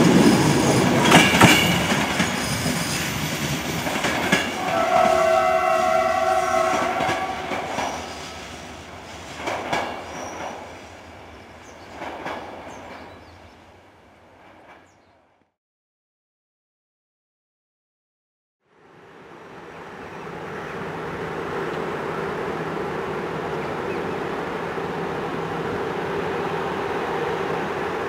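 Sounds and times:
train wheel and rail noise: 0.0 - 15.4, 18.7 - 28.0
clacks over rail joints: 0.8 - 2.8, 3.4 - 5.1, 9.4 - 10.6, 11.9 - 13.2
train horn chord: 4.5 - 8.7.

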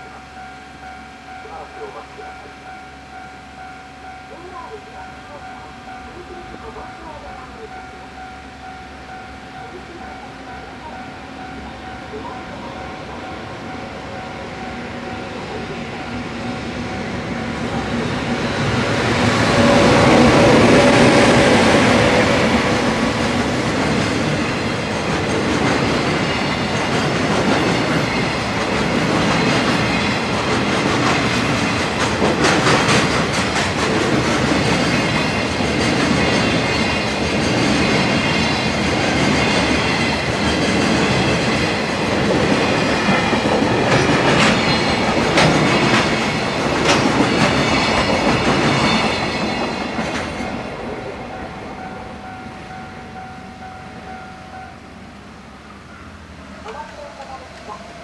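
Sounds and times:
freight train wheels clattering: 14.5 - 51.3.

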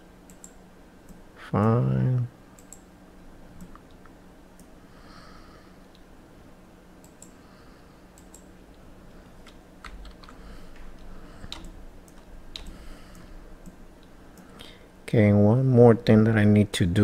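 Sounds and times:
faint steady hum: 0.0 - 17.0
keyboard and mouse clicks: 0.3 - 1.2, 2.6 - 2.9, 7.0 - 7.3, 8.2 - 8.5, 9.4 - 10.4, 11.0 - 13.8.

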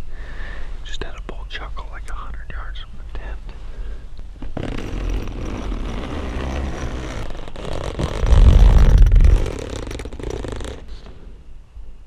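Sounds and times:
tent fabric rustling: 4.4 - 11.2
fabric rubbing on microphone: 4.4 - 11.3.

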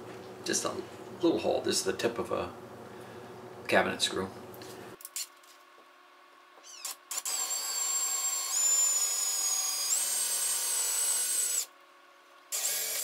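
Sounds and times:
cordless drill whining: 6.8 - 11.7, 12.5 - 13.0.

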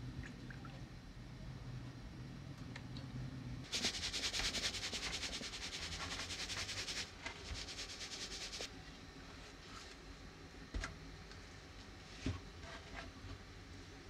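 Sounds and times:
scraper rasping fish scales: 3.7 - 8.7.

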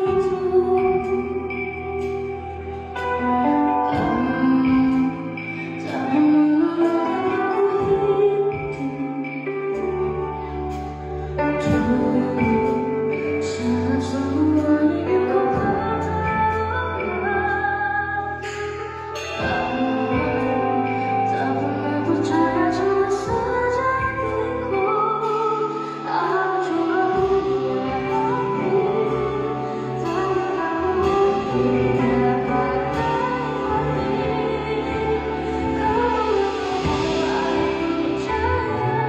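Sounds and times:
live band playing: 0.0 - 39.0
woman singing pop ballad: 0.0 - 39.0.

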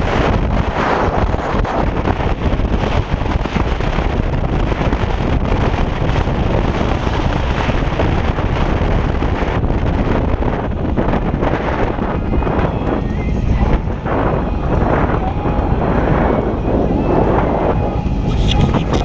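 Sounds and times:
road noise: 0.0 - 19.0
wind buffeting microphone: 0.0 - 19.0.

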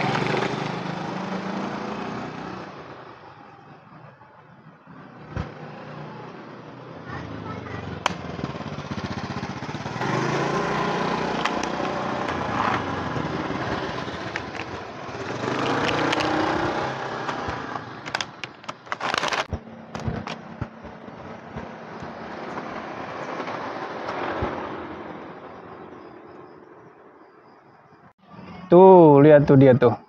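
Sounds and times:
motor vehicles passing: 0.0 - 28.7
sharp clicks: 11.3 - 12.9, 15.6 - 16.6, 17.2 - 22.6.

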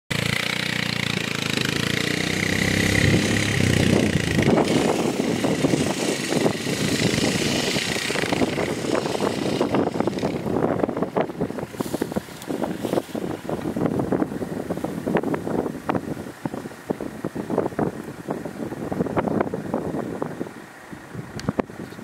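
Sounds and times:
quad bike engine running: 0.1 - 13.9
wind buffeting microphone: 0.2 - 22.0.

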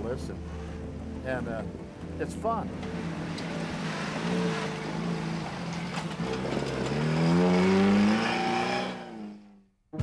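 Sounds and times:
engine pulling hard uphill: 2.7 - 9.5.

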